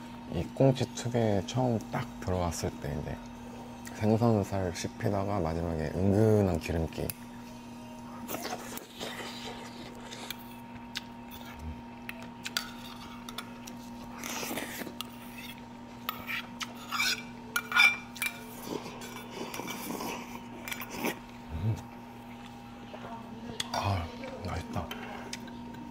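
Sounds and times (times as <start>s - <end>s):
low background hum: 0.0s - 25.9s
cutlery clinking against dishes: 16.1s - 19.9s.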